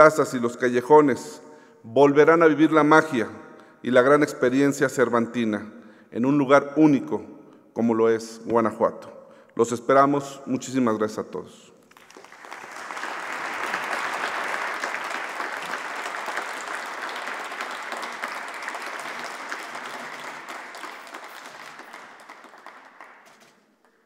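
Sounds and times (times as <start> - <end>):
audience applauding: 11.9 - 24.0.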